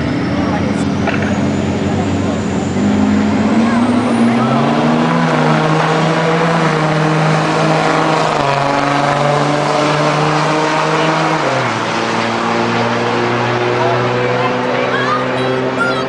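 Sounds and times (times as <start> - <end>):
pickup trucks accelerating hard: 0.0 - 16.0.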